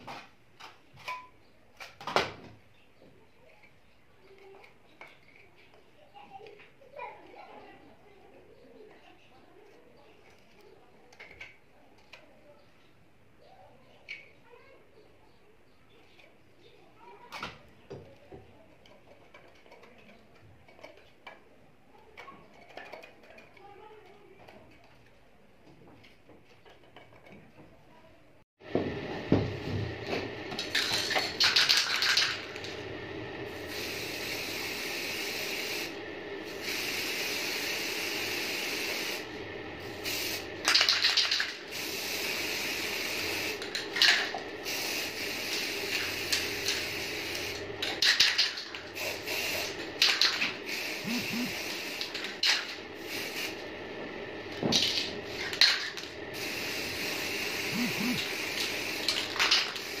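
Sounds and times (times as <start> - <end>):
steady background noise: 0.0 - 60.0
spray paint can hissing: 30.6 - 32.8, 33.5 - 53.7, 54.7 - 60.0.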